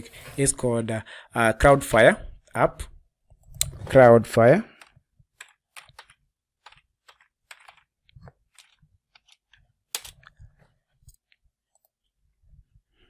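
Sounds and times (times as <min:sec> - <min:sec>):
keyboard typing: 0:04.7 - 0:10.4.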